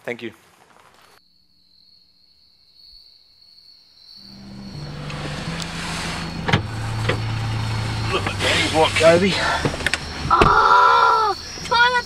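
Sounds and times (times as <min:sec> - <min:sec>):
car engine hum: 0:04.2 - 0:12.0
road noise: 0:04.2 - 0:12.0.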